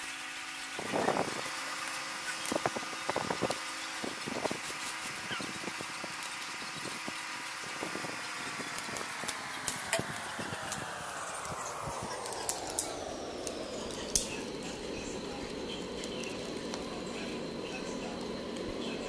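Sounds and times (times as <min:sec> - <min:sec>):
engine-like hum: 0:00.0 - 0:19.0.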